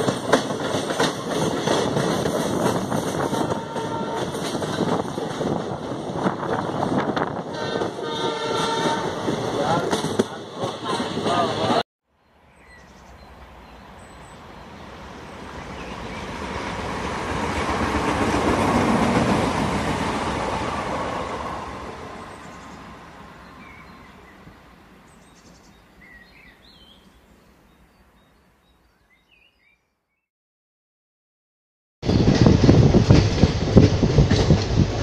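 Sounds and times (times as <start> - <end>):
train wheels rushing on rail: 0.0 - 11.8, 14.6 - 24.1, 32.0 - 35.0
bird chirps: 25.1 - 30.2.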